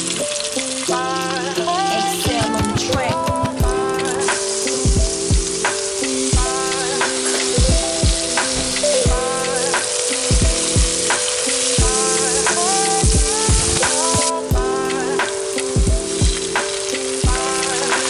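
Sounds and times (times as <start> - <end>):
background music with beat: 0.0 - 18.0
food sizzling in oil: 0.0 - 18.0.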